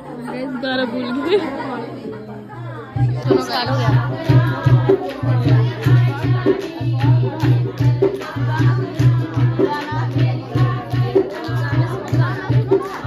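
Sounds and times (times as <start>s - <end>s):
pulsing low drum beat: 3.0s - 13.0s.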